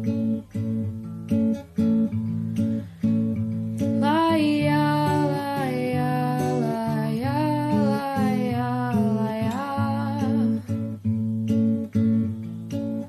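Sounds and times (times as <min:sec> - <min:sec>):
acoustic guitar strumming chords: 0:00.0 - 0:13.0
wordless vocal melody: 0:03.8 - 0:11.0.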